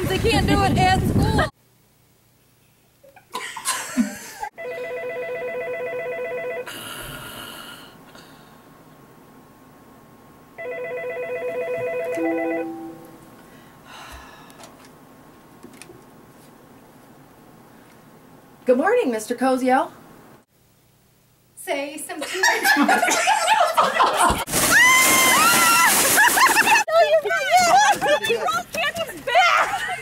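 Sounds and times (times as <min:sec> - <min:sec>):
telephone ringing electronic trill: 0:04.6 - 0:06.7, 0:10.6 - 0:13.1.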